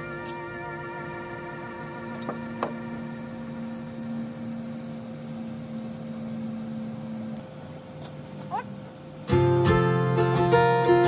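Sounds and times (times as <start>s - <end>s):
soft synth background music: 0.0s - 7.0s.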